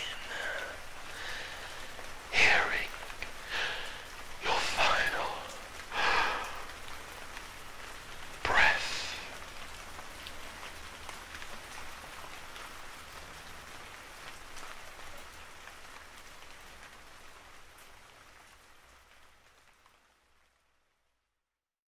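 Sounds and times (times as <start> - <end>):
rain falling: 0.0 - 21.4
raindrops pattering: 0.0 - 21.4.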